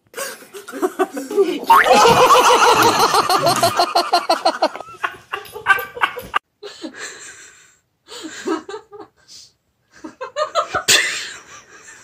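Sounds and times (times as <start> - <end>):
soft laughter: 0.2 - 6.4
person laughing hard: 0.7 - 6.4.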